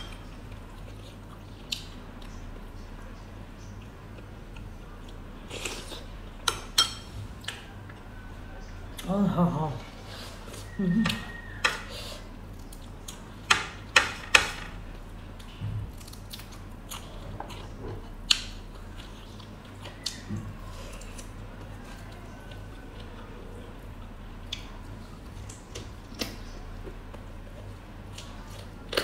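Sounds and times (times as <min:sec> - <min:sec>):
person chewing: 0:00.4 - 0:02.8, 0:03.6 - 0:09.1, 0:14.9 - 0:29.0.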